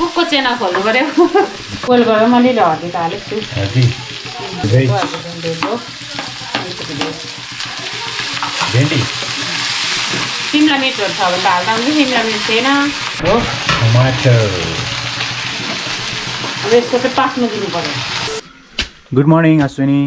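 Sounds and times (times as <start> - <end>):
pasta sizzling in a pan: 0.0 - 18.4
utensil scraping a pan: 0.6 - 10.7
wavering pitched sound: 1.4 - 18.8.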